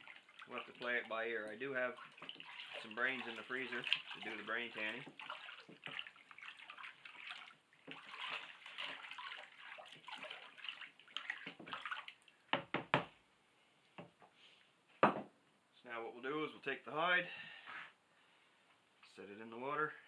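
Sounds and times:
water sloshing in a plastic tub: 0.0s - 12.5s.

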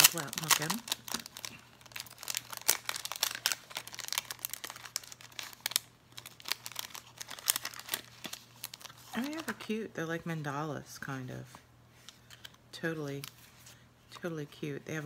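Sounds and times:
plastic sleeve crinkling: 0.0s - 9.7s.

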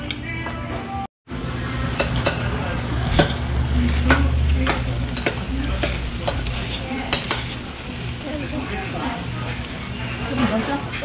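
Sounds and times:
meat sizzling in a stone pot: 3.2s - 11.0s.

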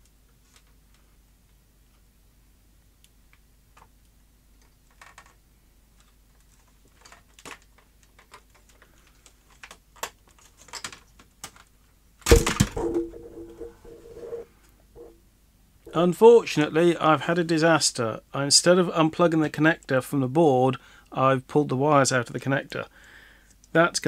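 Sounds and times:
plastic parts clicking and rustling: 4.6s - 5.4s, 6.0s - 11.7s
loud clattering: 12.3s - 14.4s.

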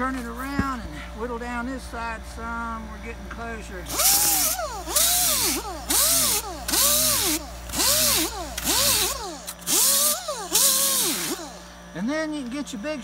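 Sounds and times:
air angle grinder whining in bursts: 3.7s - 12.1s.

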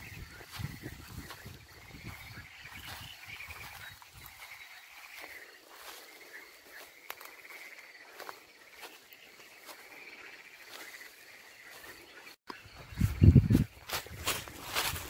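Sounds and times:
wind buffeting microphone: 0.0s - 4.6s, 12.6s - 15.0s.

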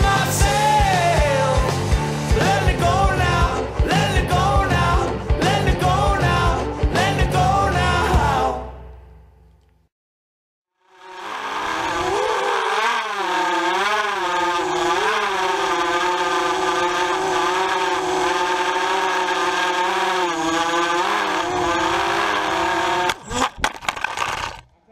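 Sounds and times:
drone motors whining: 10.8s - 24.9s
propeller rushing noise: 10.9s - 24.6s.

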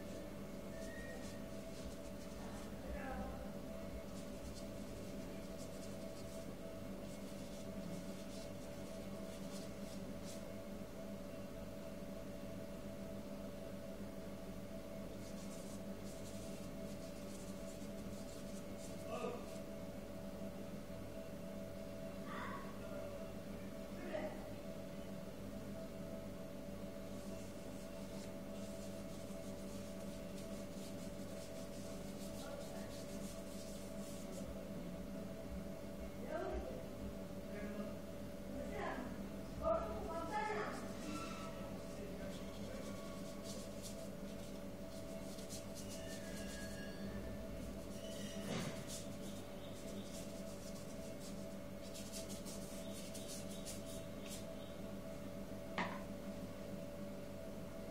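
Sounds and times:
paintbrush stroking paper: 0.0s - 10.6s, 15.1s - 19.7s, 27.1s - 34.6s, 40.1s - 54.6s
steady low hum: 0.0s - 57.9s.

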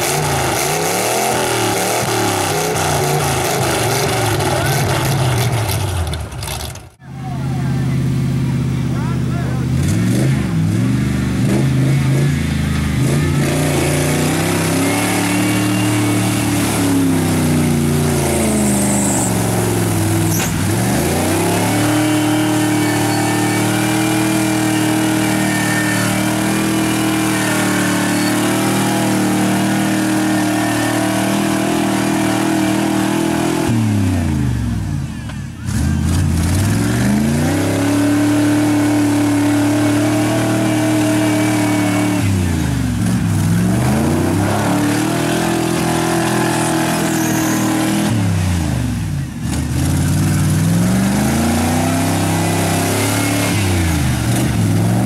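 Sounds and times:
truck engine revving hard: 0.0s - 55.0s.

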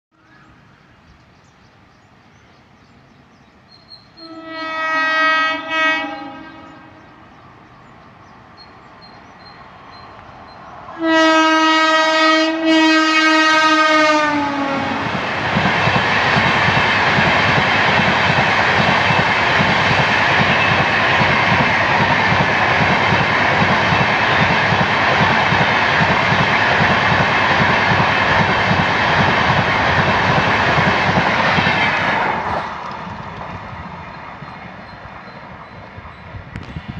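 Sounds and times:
rush of passing train coaches: 0.4s - 36.9s
train horn blasts: 4.2s - 7.3s, 11.0s - 15.2s.

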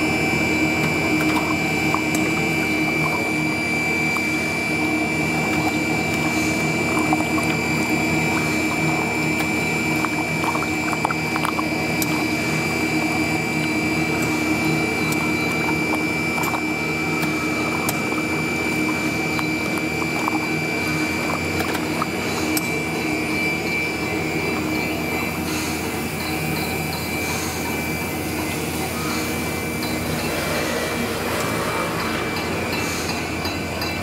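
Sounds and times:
high whine: 0.0s - 34.0s
machine hum: 0.0s - 34.0s
water running in tank: 0.0s - 34.0s.

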